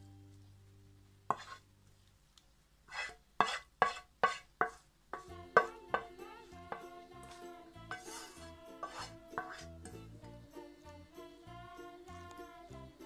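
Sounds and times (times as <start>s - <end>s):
wooden spatula scraping frying pan: 1.3s - 1.6s, 2.9s - 6.1s, 6.7s - 9.8s
background music: 5.2s - 13.0s.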